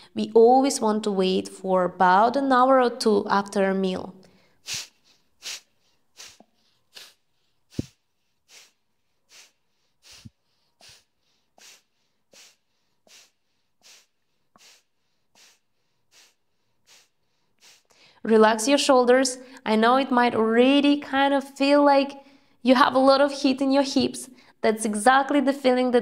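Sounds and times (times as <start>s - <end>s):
woman exhaling forcefully through nose: 4.4s - 18.2s.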